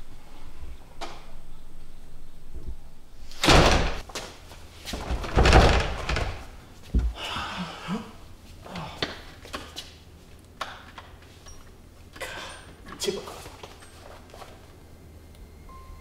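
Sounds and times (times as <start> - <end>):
door slamming shut: 3.3 - 4.1, 5.1 - 7.2.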